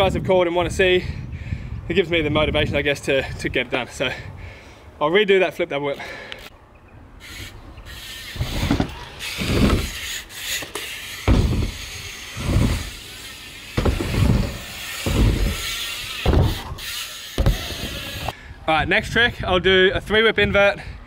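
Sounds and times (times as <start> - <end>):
bike tyres rolling hiss: 7.2 - 18.4
low thuds: 11.3 - 11.8, 13.8 - 16.8.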